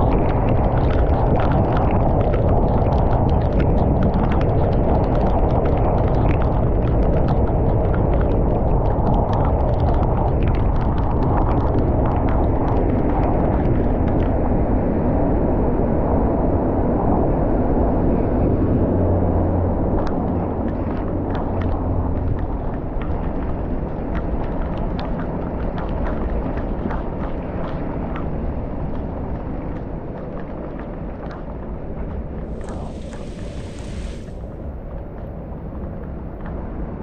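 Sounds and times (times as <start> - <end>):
torrential rain: 32.4 - 34.8
car road noise: 32.5 - 34.6.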